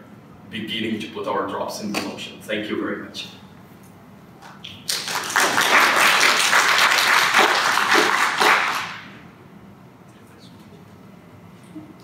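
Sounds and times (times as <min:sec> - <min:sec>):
audience applauding: 0:04.8 - 0:09.1.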